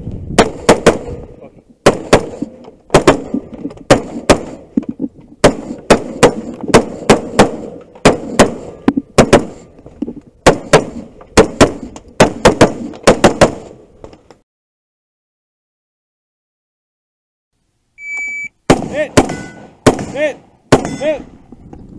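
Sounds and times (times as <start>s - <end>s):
rifle shots: 1.8s - 4.7s, 5.4s - 9.7s, 10.4s - 13.8s, 18.7s - 21.3s.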